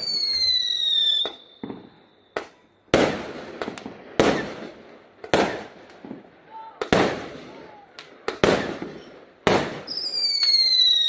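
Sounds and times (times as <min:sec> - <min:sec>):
firework whistle: 0:00.0 - 0:03.2, 0:08.4 - 0:11.0.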